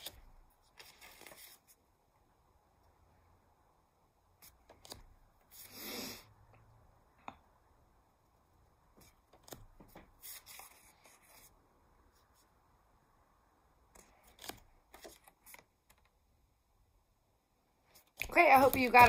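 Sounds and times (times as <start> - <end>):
index cards rustling and sliding: 0.0 - 1.9, 4.4 - 5.8, 8.9 - 11.6, 13.9 - 16.2, 17.9 - 19.0.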